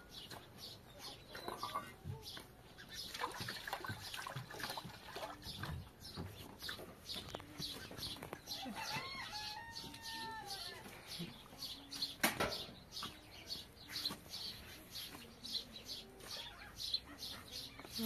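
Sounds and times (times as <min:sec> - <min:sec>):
chickens clucking: 0:00.2 - 0:04.1.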